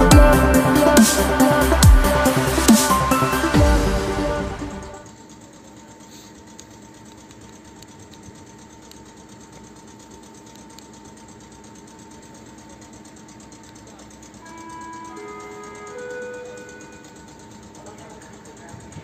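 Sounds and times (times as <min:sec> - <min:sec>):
train air compressor running: 0:05.7 - 0:06.6.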